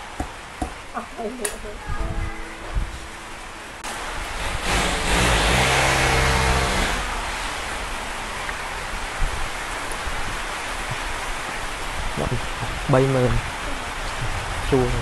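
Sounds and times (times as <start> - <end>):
heavy rain hiss: 0.0 - 15.0
vehicle passing by: 4.1 - 7.9.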